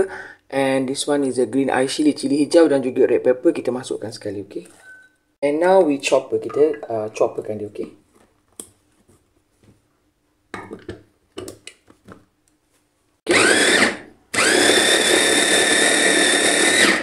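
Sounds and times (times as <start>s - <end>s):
food chopper motor whirring: 13.3s - 17.0s.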